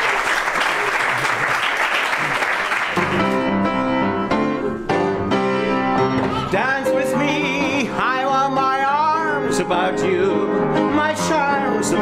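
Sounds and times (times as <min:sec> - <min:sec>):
audience applause: 0:00.0 - 0:03.5
plucked instrumental music: 0:03.0 - 0:10.4.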